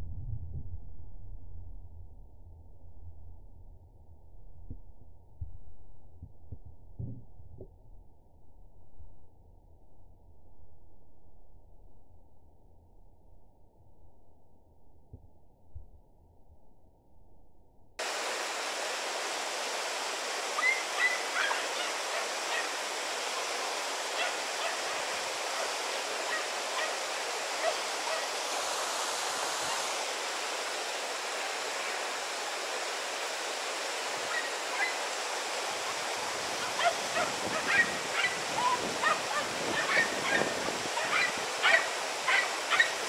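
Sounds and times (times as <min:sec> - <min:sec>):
flowing river water: 0:18.0 - 0:43.0
faint short calls: 0:20.5 - 0:28.6.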